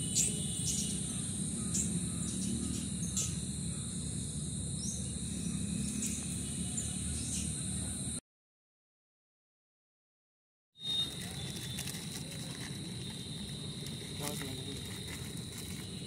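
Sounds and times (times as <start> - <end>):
bird chirps: 0.0 - 4.1, 4.8 - 8.0, 10.8 - 12.1
high-pitched insect drone: 0.0 - 8.2, 10.8 - 16.0.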